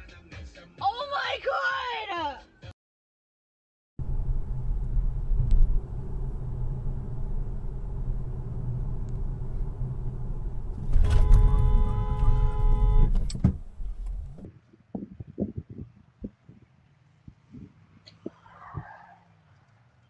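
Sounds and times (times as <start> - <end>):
car road and engine rumble: 4.0 - 14.5
car horn blaring: 10.6 - 13.3.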